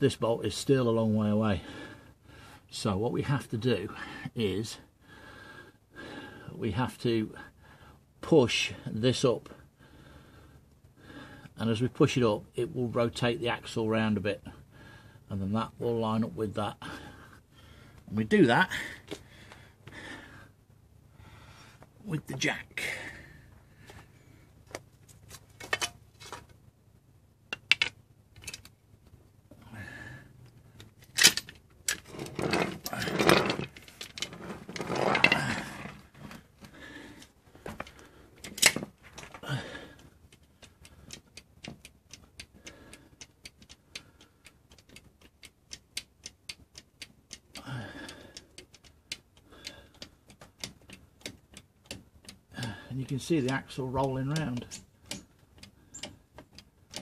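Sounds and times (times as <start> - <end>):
jack knocking and scraping: 31.1 - 36.4.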